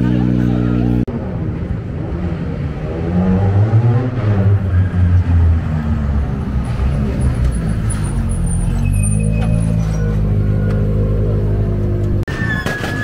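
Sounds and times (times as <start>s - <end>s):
rally car engine revving: 1.9s - 12.2s.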